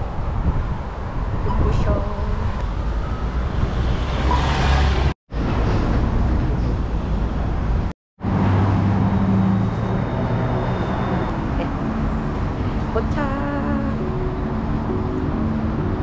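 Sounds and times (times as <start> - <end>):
road traffic passing: 0.0 - 16.0
low steady engine tones: 9.2 - 16.0.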